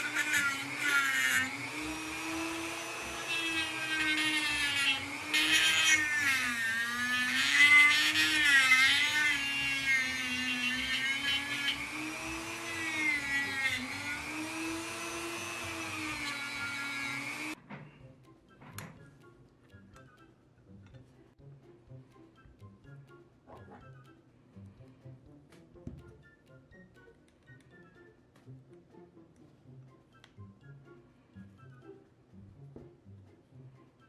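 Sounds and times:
rotary tool polishing metal: 0.0s - 17.6s.

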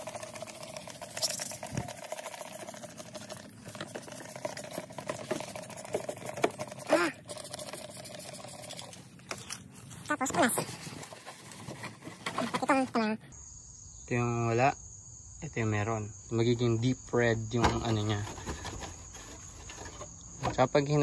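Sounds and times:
spray bottle spritzing: 0.0s - 10.4s.

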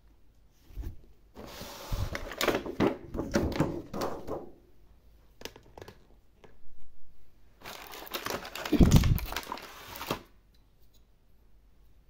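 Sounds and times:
packaging rustling and knocking: 2.1s - 4.6s, 7.6s - 10.3s.

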